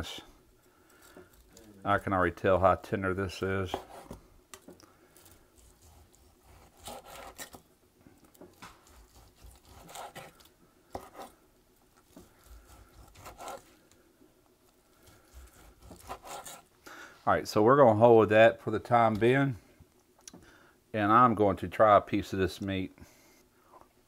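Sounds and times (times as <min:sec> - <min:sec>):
knife slicing meat on board: 0:03.7 - 0:04.2, 0:05.6 - 0:07.6, 0:08.5 - 0:11.4, 0:12.0 - 0:13.7, 0:15.0 - 0:16.7.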